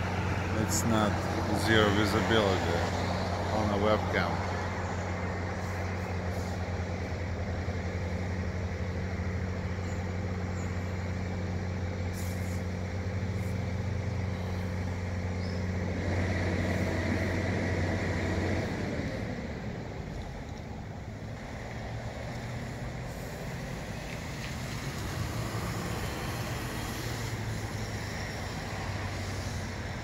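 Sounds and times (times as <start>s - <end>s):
vehicle engine idling: 0.0s - 30.0s
rushing hiss: 5.4s - 7.2s, 12.0s - 18.0s, 23.0s - 30.0s.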